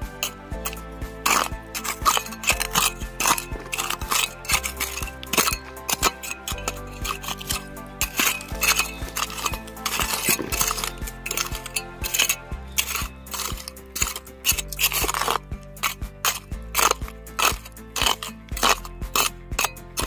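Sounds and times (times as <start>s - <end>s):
background music with sustained chords: 0.0s - 20.0s
rake scraping stones under water: 0.1s - 20.0s.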